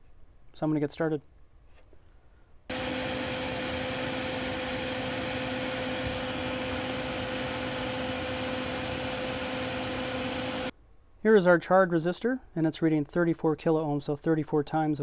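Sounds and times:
electric fan whirring: 2.7s - 10.7s.

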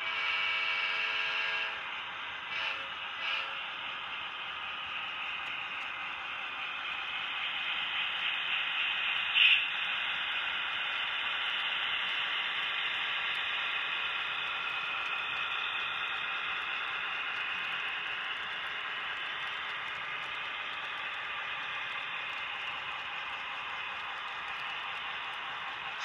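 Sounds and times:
model train motor whirring: 1.5s - 26.0s.

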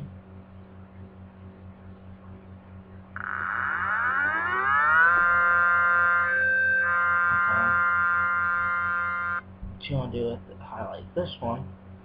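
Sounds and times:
low steady hum: 0.0s - 12.0s
synthetic siren tones: 3.2s - 9.4s.

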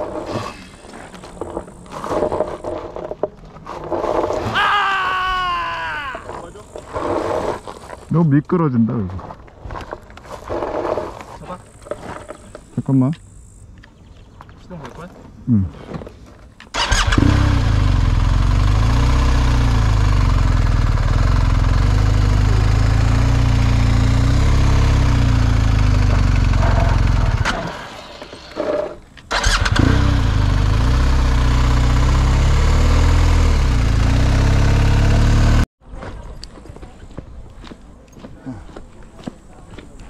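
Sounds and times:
motorcycle engine starting and running: 16.7s - 28.4s, 29.3s - 35.7s.

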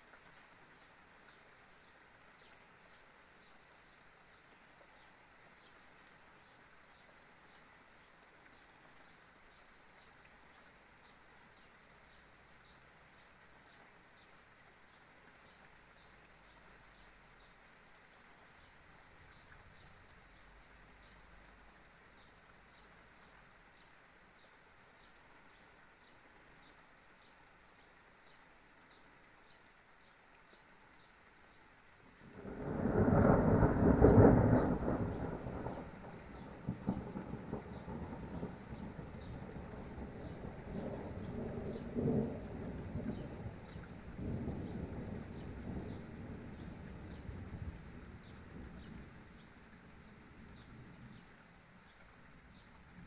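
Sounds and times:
thunder rumble: 32.4s - 48.8s.

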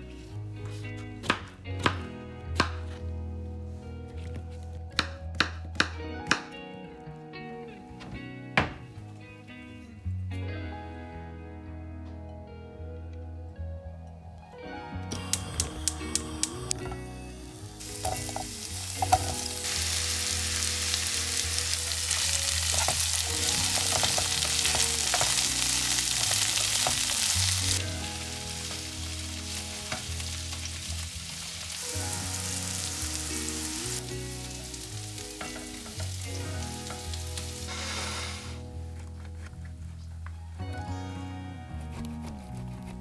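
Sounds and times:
vegetables sizzling in oil: 17.6s - 38.6s.

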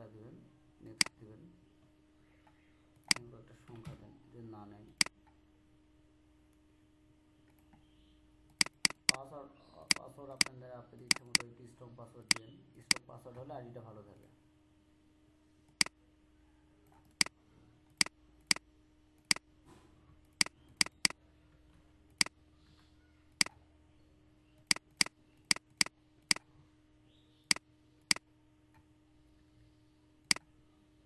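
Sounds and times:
faint electrical hum: 0.0s - 31.0s
computer mouse clicking: 8.5s - 9.2s, 9.9s - 11.4s, 16.9s - 18.6s, 20.3s - 21.2s, 24.6s - 26.4s.

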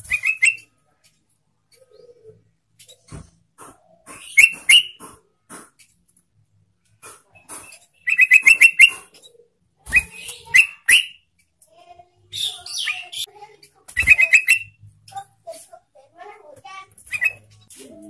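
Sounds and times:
bird singing loudly: 8.0s - 9.0s, 10.0s - 11.2s, 14.0s - 14.7s, 17.1s - 17.5s.

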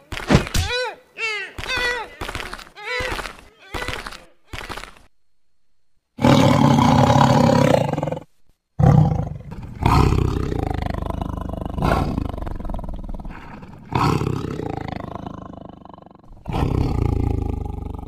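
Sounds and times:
big cats roaring and growling: 6.2s - 18.0s.

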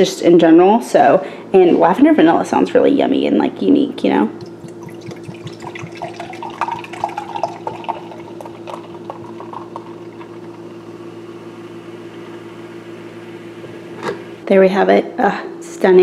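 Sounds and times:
low hum: 4.2s - 14.0s
fizzy drink pouring into glass: 4.4s - 10.7s.

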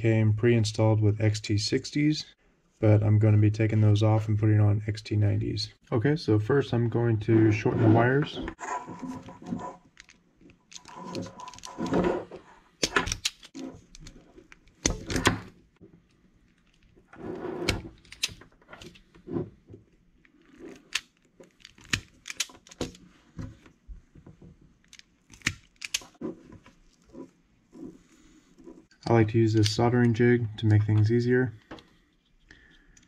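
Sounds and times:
handling of tool and wires: 7.5s - 33.0s
wire stripper snapping and clicking: 12.8s - 14.1s, 17.7s - 18.9s, 20.9s - 23.0s, 24.9s - 26.2s.

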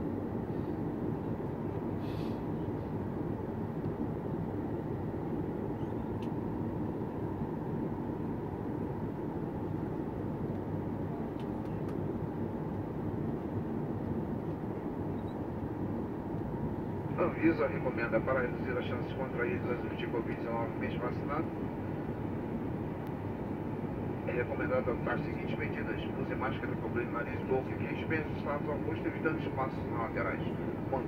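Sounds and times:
airliner cabin engine noise: 0.0s - 31.0s.

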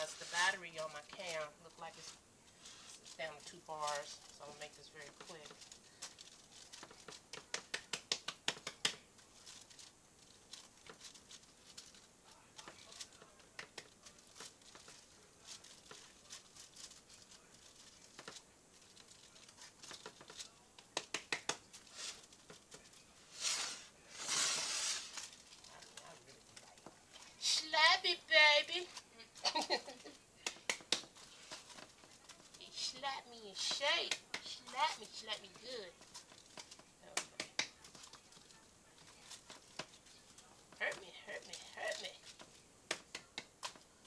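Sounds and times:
rustling: 0.0s - 44.0s
hands patting wet meat: 6.7s - 9.1s, 20.8s - 21.7s, 30.4s - 32.5s.

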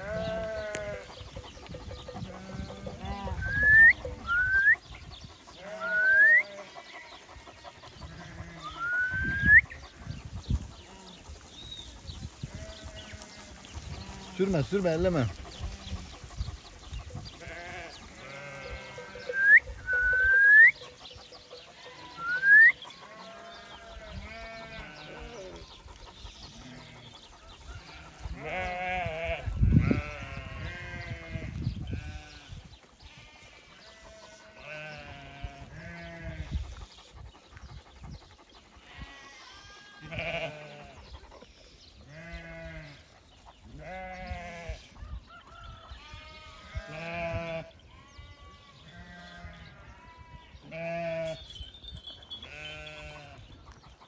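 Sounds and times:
sheep bleating: 0.0s - 1.2s, 2.1s - 4.8s, 5.6s - 7.3s, 7.9s - 9.6s, 17.3s - 20.7s, 21.7s - 25.7s, 27.8s - 32.5s, 33.1s - 36.5s, 38.8s - 41.0s, 42.1s - 43.1s, 43.8s - 44.9s, 45.9s - 53.4s
short rising whistles: 8.8s - 9.7s.

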